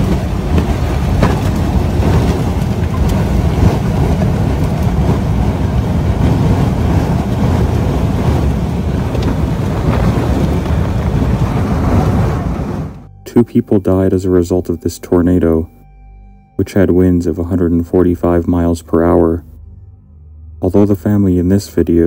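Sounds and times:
sharp knocks: 0.0 - 3.9
tornado wind rushing: 0.0 - 13.1.

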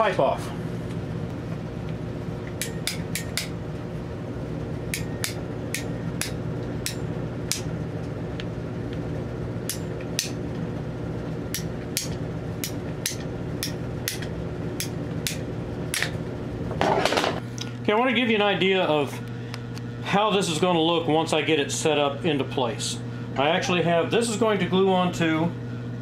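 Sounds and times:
low hum: 0.0 - 21.2
pipe cutter ratchet clicking: 2.6 - 3.5, 11.5 - 16.1.

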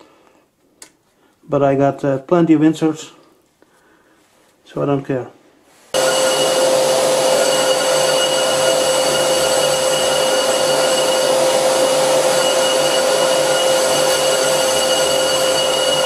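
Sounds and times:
vacuum hose airflow: 5.9 - 16.0
lathe cutting metal: 6.0 - 16.0
steady ringing chatter tone: 6.0 - 16.0.

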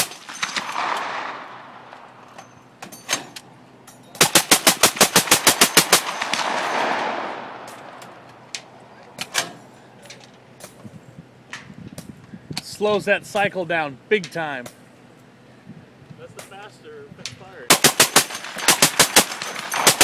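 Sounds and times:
suppressed machine gun burst: 0.0 - 1.8, 4.2 - 8.2, 17.7 - 20.0.

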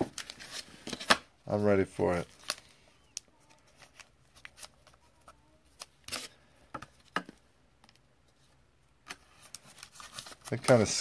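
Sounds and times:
cards and plastic holder handled: 2.3 - 11.0.

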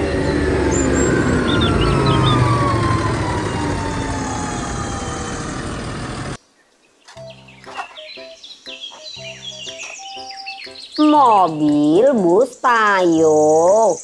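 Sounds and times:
engine whine: 0.0 - 6.4
tractor diesel engine running: 0.0 - 6.4
birds chirping: 0.0 - 14.0.

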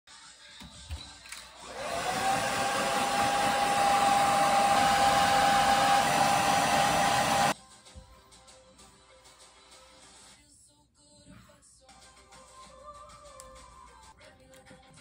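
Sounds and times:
hair dryer blowing: 1.6 - 7.6.

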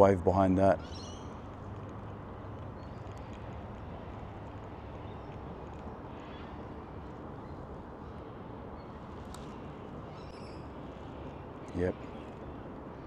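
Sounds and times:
steady low hiss: 0.0 - 13.0
bird chirps: 0.8 - 1.4, 8.8 - 12.7.

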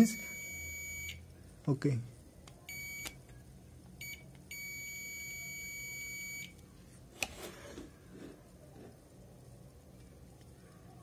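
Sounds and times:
multimeter beeping: 0.0 - 1.3, 2.7 - 3.2, 4.0 - 6.6.

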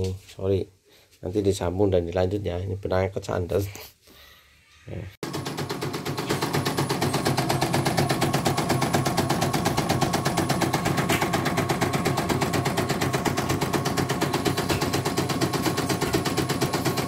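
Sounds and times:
embroidery machine clattering: 5.2 - 17.0.

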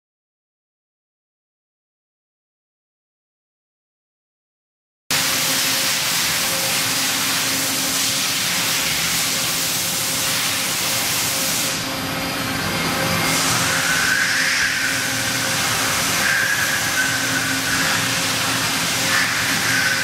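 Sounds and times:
machining center humming and hissing: 5.1 - 20.0.

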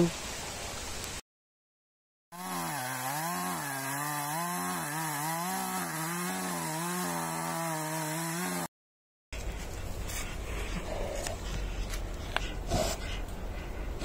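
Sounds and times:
chainsaw cutting wood: 2.4 - 8.7.

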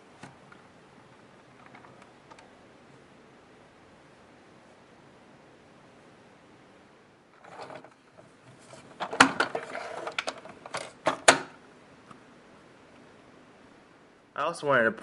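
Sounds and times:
soft rustle: 7.3 - 10.6
plastic toys clicking and knocking: 9.0 - 11.5.

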